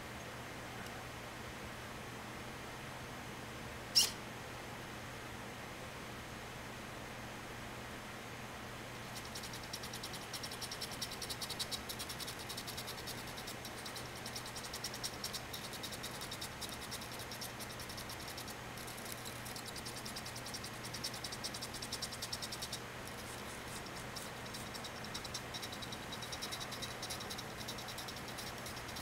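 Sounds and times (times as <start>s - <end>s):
faint low hum: 8.7s - 29.0s
servos buzzing chatter: 9.2s - 29.0s.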